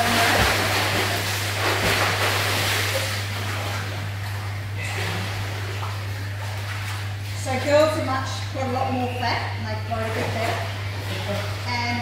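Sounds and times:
water splashing from swimmer: 0.0 - 8.0
steady low hum: 0.0 - 12.0.

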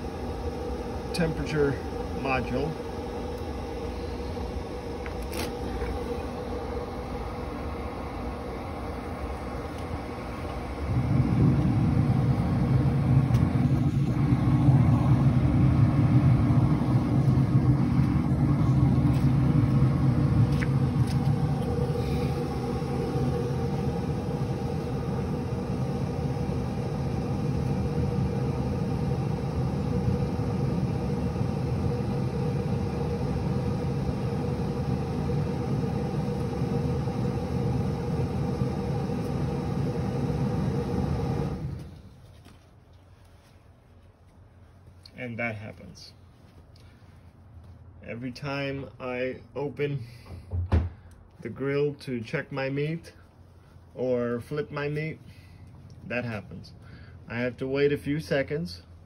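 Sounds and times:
pellet grill rumbling: 0.0 - 41.8.

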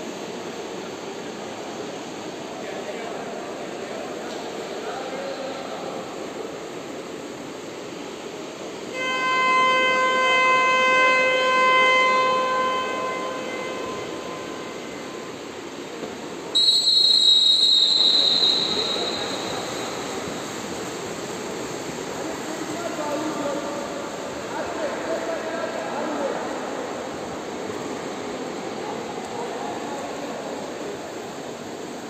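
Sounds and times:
indoor pool hall din: 0.0 - 32.0
low horn-like signal tone: 8.9 - 15.8, 16.6 - 20.6
high shrill signal tone: 16.6 - 20.5.

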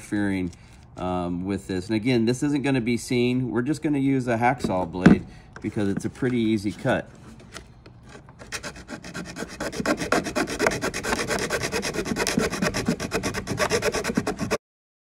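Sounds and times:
hacksaw blade sawing plastic: 8.0 - 14.6.

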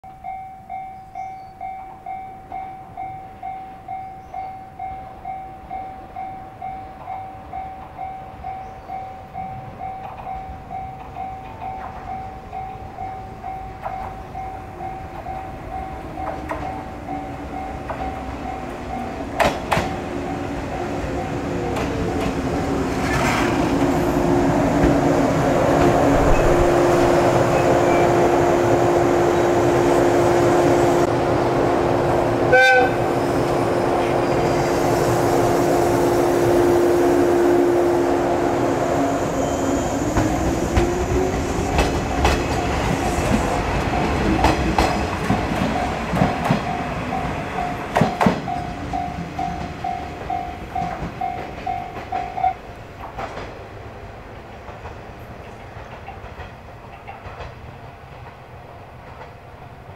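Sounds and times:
electric train approaching: 0.1 - 59.9
falling tone: 24.2 - 31.1.

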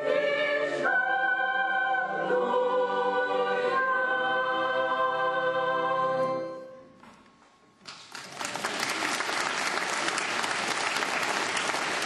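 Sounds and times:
choir final chord: 0.0 - 6.8
audience applause: 7.9 - 12.0.

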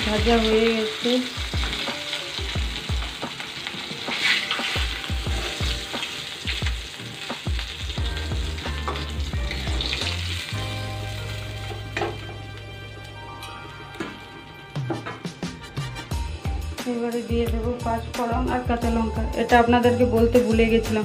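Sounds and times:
fish sizzling in hot oil: 0.0 - 13.0
background music: 0.0 - 21.0
metal spatula scraping a pan: 15.4 - 16.2.

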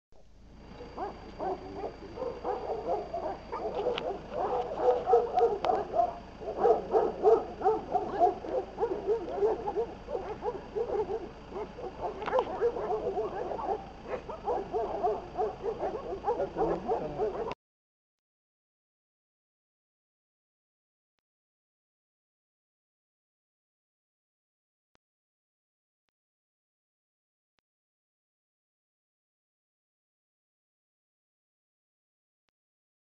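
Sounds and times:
dogs barking: 0.8 - 17.6.

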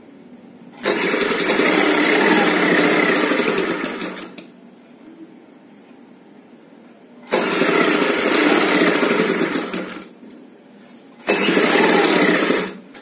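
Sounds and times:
sewing machine running: 0.8 - 4.4, 7.2 - 10.2, 11.2 - 13.0.

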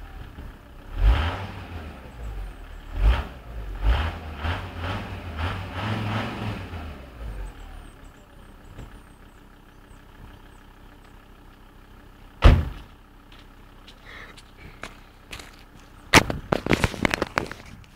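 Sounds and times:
engine idling hum: 0.0 - 17.9
van door slamming: 12.4 - 13.0
light footsteps: 12.8 - 17.9.

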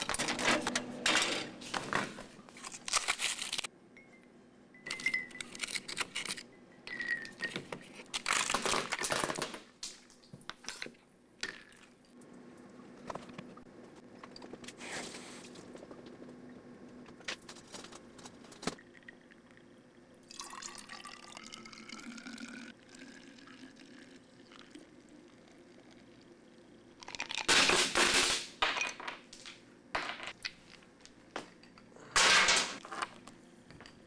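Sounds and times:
tea pouring into bottle: 20.3 - 26.3.

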